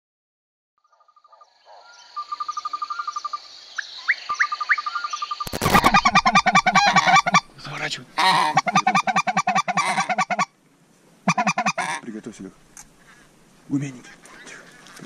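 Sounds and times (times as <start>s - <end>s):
chirping trill: 2.2s - 7.5s
geese honking: 5.5s - 7.5s, 8.2s - 10.5s, 11.3s - 12.0s.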